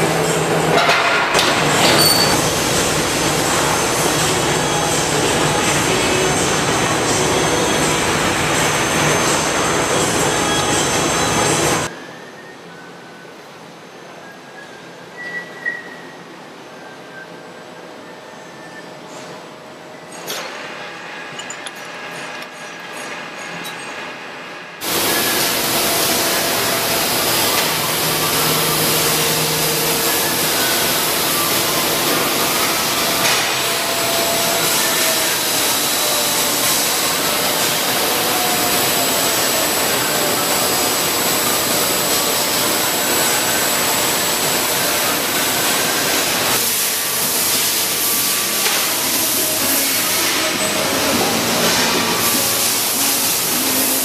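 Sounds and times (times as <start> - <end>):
grinding machine hissing: 1.5 - 11.9, 24.8 - 54.0.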